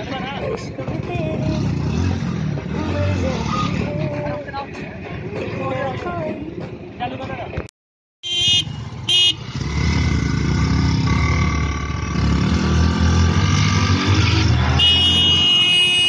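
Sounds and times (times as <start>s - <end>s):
motorcycle engines revving: 0.0s - 5.9s, 8.3s - 16.0s
horn honking: 8.2s - 9.6s, 14.3s - 16.0s.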